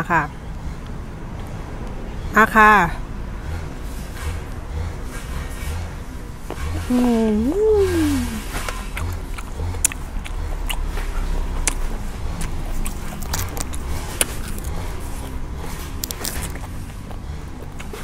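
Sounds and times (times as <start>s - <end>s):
close-up chewing: 6.4s - 18.0s
wet mouth clicks and smacks: 8.5s - 15.3s, 16.0s - 18.0s.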